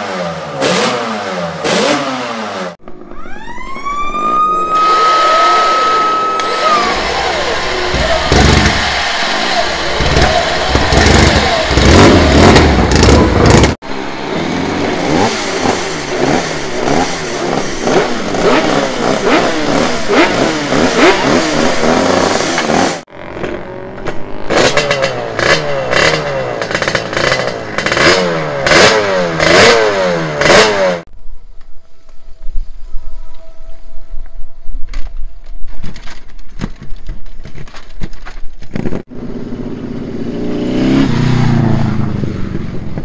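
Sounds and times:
motorcycle engine revving: 0:00.0 - 0:03.1, 0:04.8 - 0:31.1, 0:38.8 - 0:43.0
two-stroke motorcycle engine blipping: 0:04.5 - 0:30.8.

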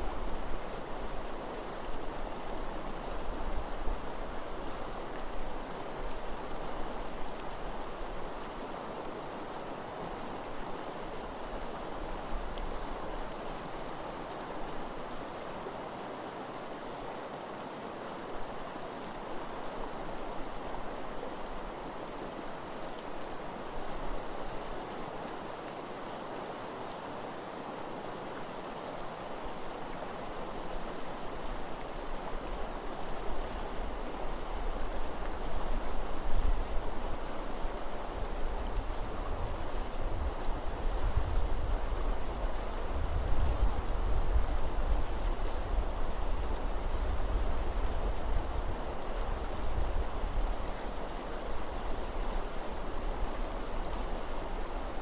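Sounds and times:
river rushing over gravel: 0:00.0 - 0:55.0
wind rumble on microphone: 0:33.2 - 0:55.0.

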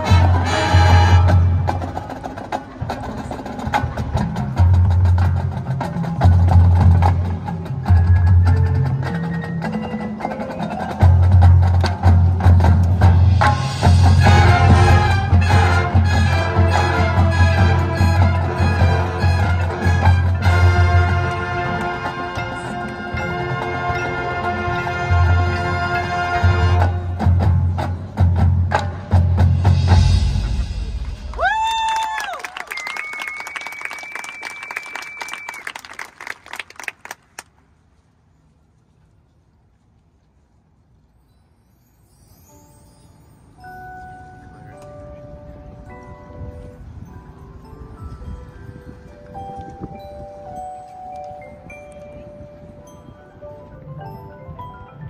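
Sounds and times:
brass chord: 0:00.0 - 0:01.8, 0:13.8 - 0:27.2
marching band playing: 0:00.0 - 0:31.5
percussion hits: 0:00.0 - 0:31.9
mallet percussion notes: 0:03.8 - 0:31.3, 0:41.2 - 0:55.0.

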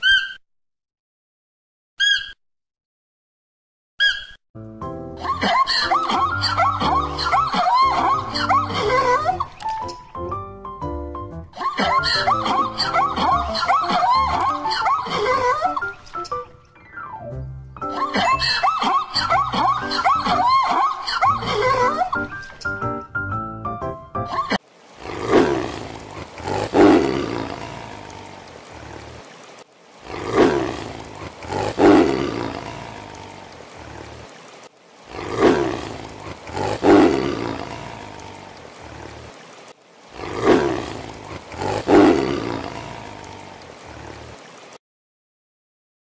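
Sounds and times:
tigers roaring: 0:24.9 - 0:29.3, 0:30.0 - 0:34.3, 0:35.1 - 0:39.4, 0:40.1 - 0:44.2.

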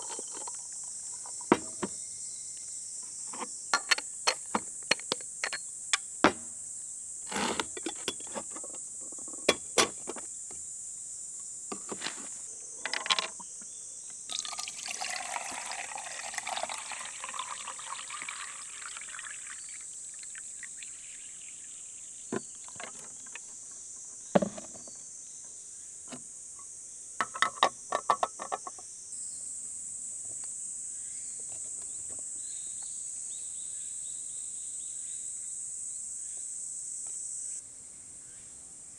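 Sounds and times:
insects chirring: 0:00.0 - 0:38.9
glass parts clinking: 0:03.7 - 0:05.7
water pouring over ice: 0:14.3 - 0:22.9.

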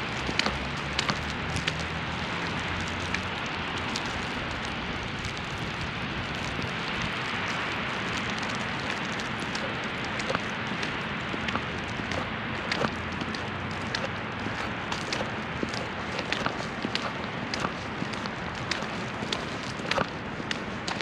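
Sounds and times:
snowstorm hiss: 0:00.0 - 0:21.0
light ticks: 0:00.2 - 0:01.9.

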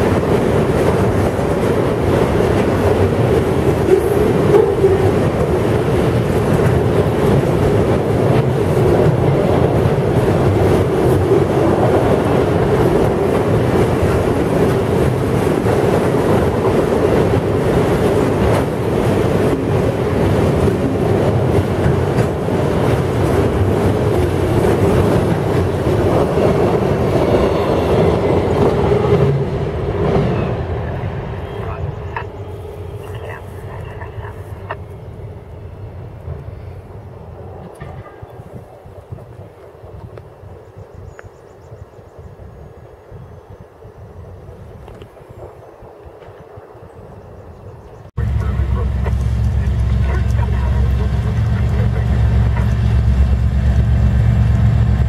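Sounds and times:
freight train rolling past: 0:00.0 - 0:55.0.

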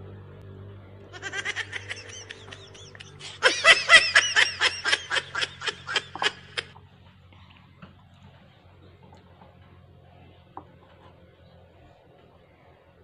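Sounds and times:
high-pitched snickering laughter: 0:01.1 - 0:06.8.

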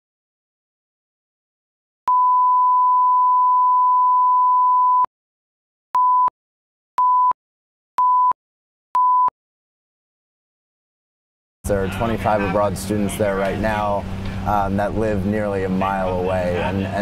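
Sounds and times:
short beeps: 0:02.1 - 0:05.1, 0:06.0 - 0:06.3, 0:07.0 - 0:07.4, 0:08.0 - 0:08.4, 0:09.0 - 0:09.3.

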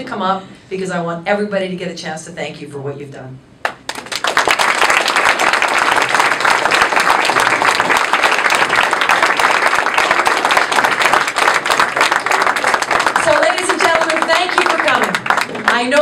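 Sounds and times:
audience applauding: 0:03.6 - 0:16.0.

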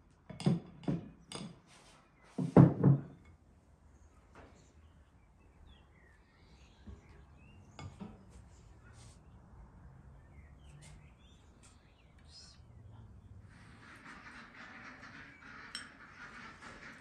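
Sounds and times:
faint bird chirps: 0:10.3 - 0:13.3.

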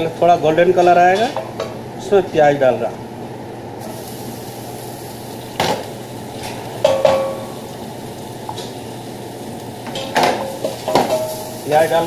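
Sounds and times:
steady background noise: 0:00.0 - 0:12.0
onions sizzling in hot oil: 0:03.8 - 0:12.0.

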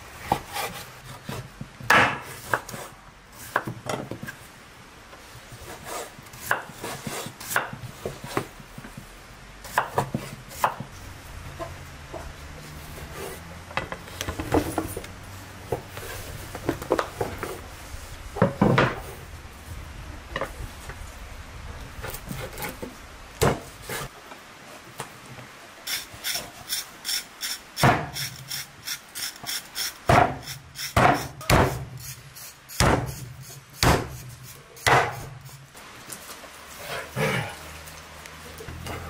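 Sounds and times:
cleaver chopping on wooden board: 0:30.1 - 0:31.8, 0:32.8 - 0:33.1, 0:33.8 - 0:34.2, 0:34.8 - 0:35.2.

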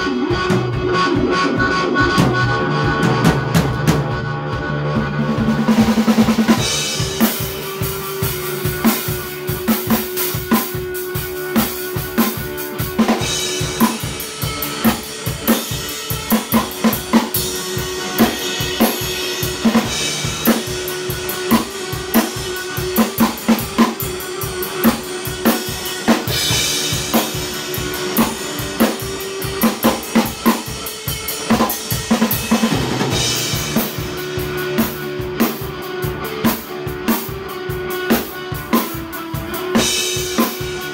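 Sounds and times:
drum kit fast groove: 0:00.0 - 0:40.9
electric guitar: 0:00.0 - 0:40.9.

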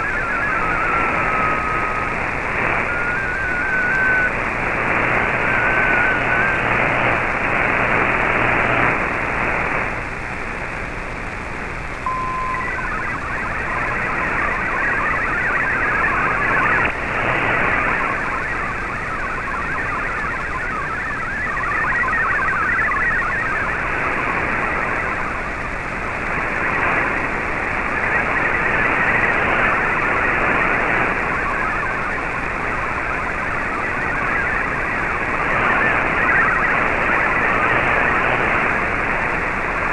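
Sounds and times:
warbling digital data tones: 0:00.0 - 0:02.2, 0:02.8 - 0:07.2, 0:12.0 - 0:25.5, 0:27.6 - 0:38.2
static hiss: 0:00.0 - 0:39.9
short steady beep: 0:12.0 - 0:13.3.

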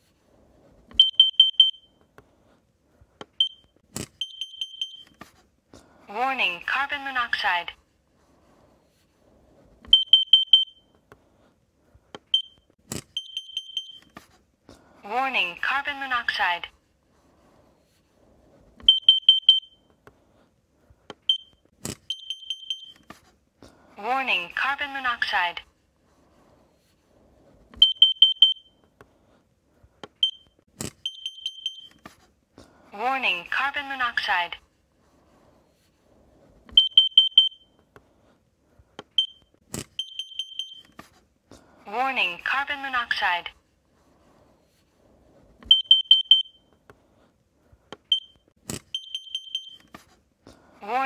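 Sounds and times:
high electronic alarm beeps: 0:01.0 - 0:01.9, 0:04.2 - 0:05.2, 0:09.9 - 0:10.8, 0:13.2 - 0:14.1, 0:18.9 - 0:19.8, 0:27.8 - 0:28.7, 0:30.2 - 0:32.0, 0:36.8 - 0:37.7, 0:40.0 - 0:40.9, 0:45.7 - 0:46.6, 0:48.1 - 0:49.8.

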